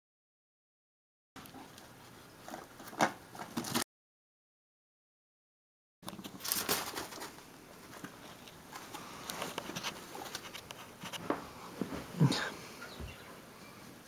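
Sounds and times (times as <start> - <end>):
guinea pigs munching: 1.4 - 3.7, 6.0 - 11.7.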